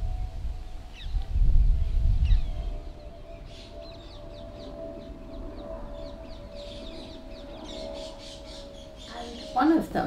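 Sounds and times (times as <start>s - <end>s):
steady hum: 0.0s - 10.0s
small birds chirping: 2.2s - 10.0s.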